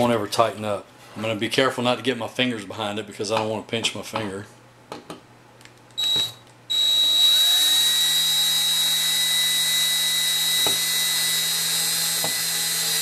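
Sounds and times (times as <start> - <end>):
power drill whining: 6.0 - 13.0.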